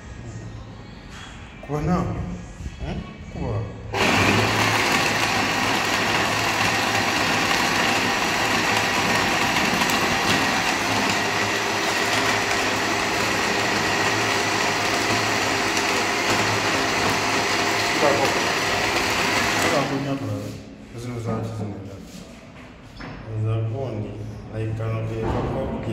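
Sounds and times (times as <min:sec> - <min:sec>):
blender motor running: 0:04.0 - 0:20.2.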